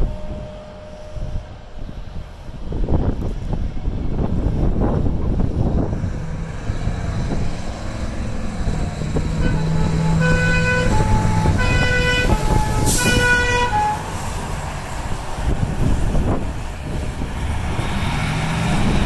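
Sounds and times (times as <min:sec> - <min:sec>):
two-tone warning horns: 0:00.0 - 0:03.0, 0:06.2 - 0:14.8
diesel truck driving past: 0:03.6 - 0:19.0.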